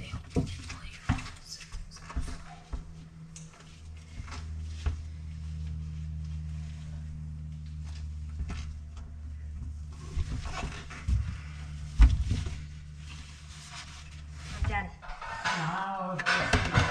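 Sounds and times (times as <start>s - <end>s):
steady low hum: 0.0s - 16.9s.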